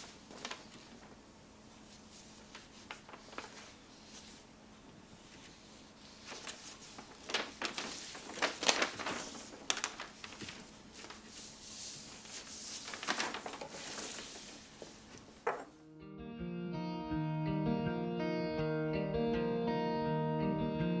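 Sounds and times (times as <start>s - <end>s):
paper map rustling and crinkling: 0.0s - 15.8s.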